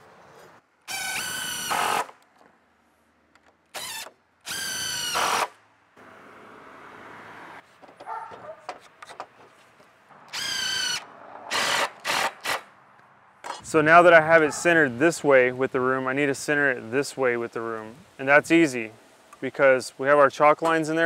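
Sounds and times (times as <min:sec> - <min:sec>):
drill driving screws into wood: 0:00.9 - 0:02.2, 0:03.7 - 0:05.6, 0:10.3 - 0:12.7.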